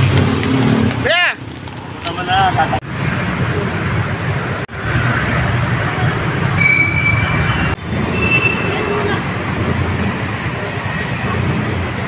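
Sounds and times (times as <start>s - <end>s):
train wheel squeals: 6.6s - 9.2s, 10.0s - 11.0s.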